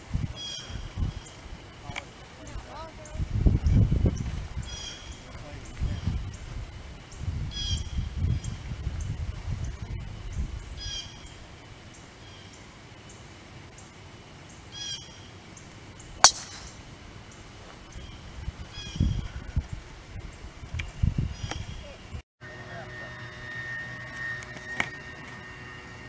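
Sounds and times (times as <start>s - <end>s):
low rumbling on microphone: 0.0s - 10.8s
sharp crack: 16.2s - 16.8s
bird calling high notes: 22.4s - 26.0s.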